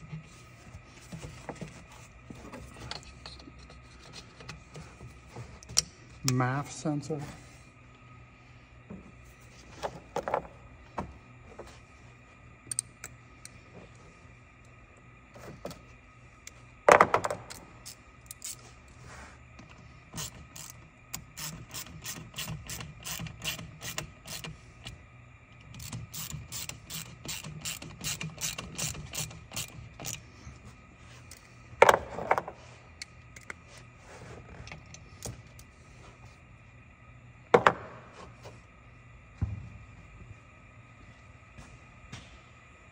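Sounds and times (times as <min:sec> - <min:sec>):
hand ratchet clicking: 0:20.2 - 0:24.5, 0:25.7 - 0:30.2.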